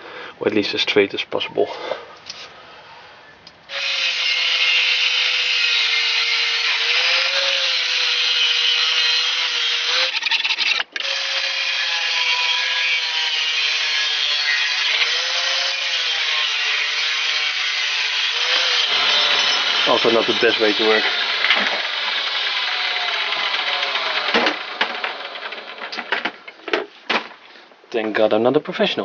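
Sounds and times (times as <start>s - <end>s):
angle grinder cutting metal: 3.7s - 26.3s.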